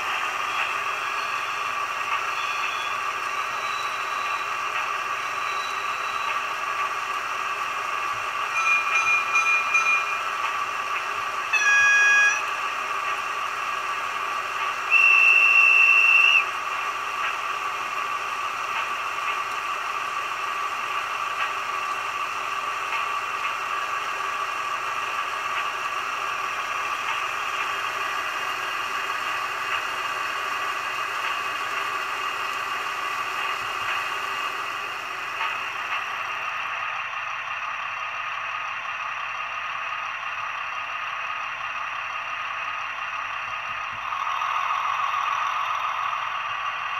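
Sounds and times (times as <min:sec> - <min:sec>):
diesel engine sound from loudspeaker: 0:00.0 - 0:46.9
locomotive horn: 0:11.5 - 0:12.6, 0:14.9 - 0:16.4.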